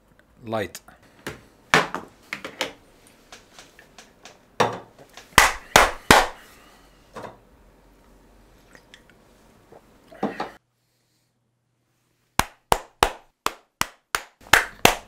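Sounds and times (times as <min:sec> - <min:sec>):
sharp hand claps: 0:05.2 - 0:06.4, 0:12.4 - 0:15.0.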